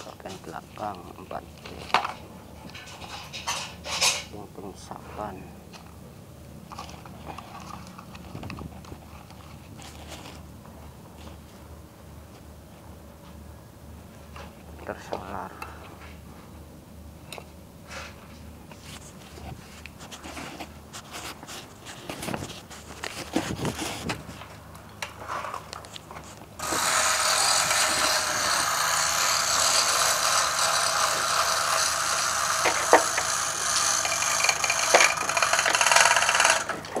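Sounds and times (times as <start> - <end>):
loud hissing machine noise: 26.6 - 36.9
metal engine parts clicking: 31.3 - 37.0.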